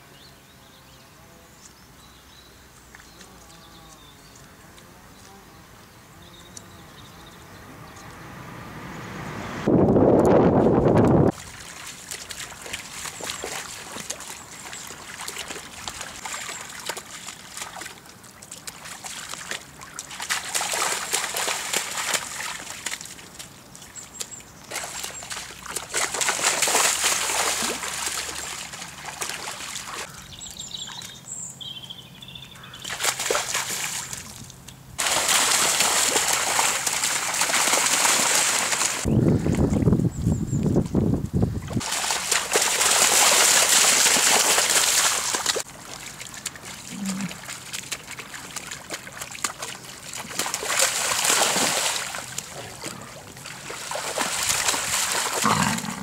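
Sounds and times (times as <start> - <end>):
animals splashing through water: 10.5 - 31.2, 32.6 - 39.8, 41.7 - 56.0.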